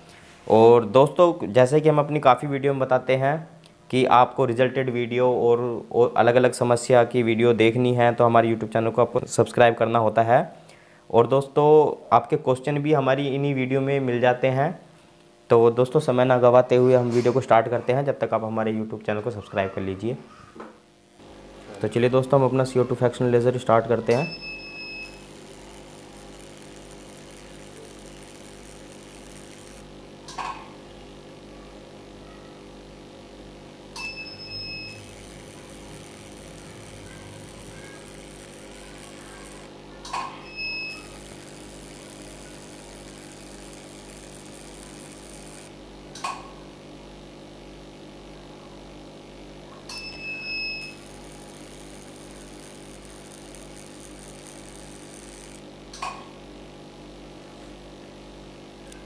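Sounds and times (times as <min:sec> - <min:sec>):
laser unit humming: 0:00.0 - 0:59.0
laser handpiece bursts: 0:24.1 - 0:30.4, 0:34.0 - 0:45.8, 0:49.9 - 0:55.7
short high beep: 0:24.2 - 0:25.3, 0:34.0 - 0:35.2, 0:40.4 - 0:41.2, 0:50.0 - 0:51.1.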